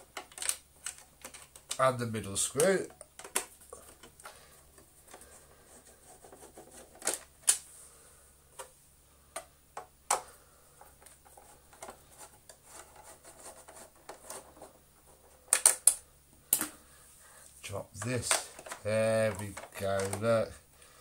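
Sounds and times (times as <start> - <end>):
plastic parts clicking and knocking: 0.0 - 1.8, 2.5 - 5.3, 6.3 - 7.6, 9.3 - 16.8, 18.0 - 20.4
faint rubbing and scraping: 1.3 - 7.0, 10.6 - 15.5.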